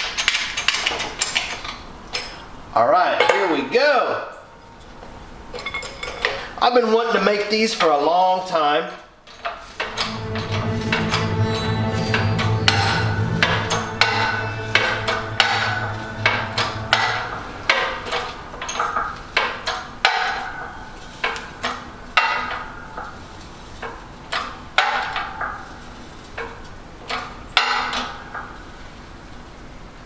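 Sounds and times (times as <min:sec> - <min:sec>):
background music: 0:09.7 - 0:23.4.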